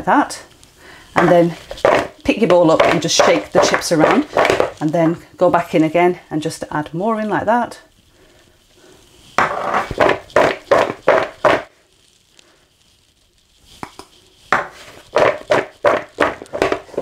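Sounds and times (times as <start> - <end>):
fries rattling in a bowl: 1.2 - 4.9, 13.6 - 17.0.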